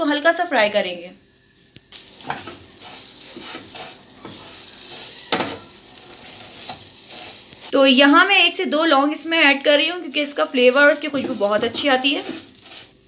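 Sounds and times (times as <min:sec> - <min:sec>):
noodles sizzling in a pan: 0:00.6 - 0:13.0
wooden spatula scraping a pan: 0:01.9 - 0:07.8, 0:09.8 - 0:13.0.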